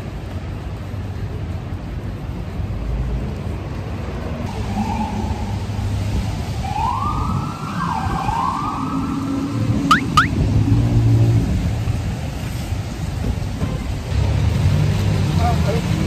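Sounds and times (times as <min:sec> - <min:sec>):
low rumble of street traffic: 0:00.0 - 0:16.0
emergency vehicle siren wailing: 0:04.6 - 0:10.4.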